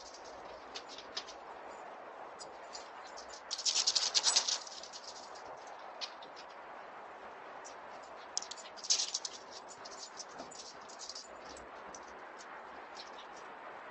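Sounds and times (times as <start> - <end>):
microphone hiss: 0.0 - 13.9
dog claws clicking on stone: 8.4 - 11.6.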